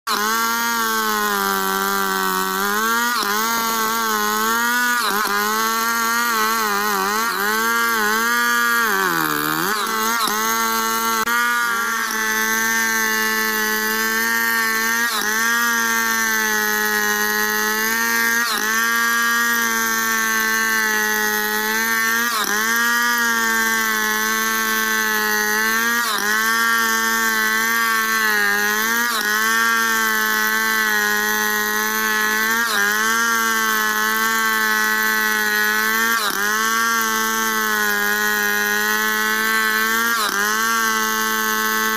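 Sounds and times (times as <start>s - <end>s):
chainsaw cutting a log: 0.0s - 41.9s.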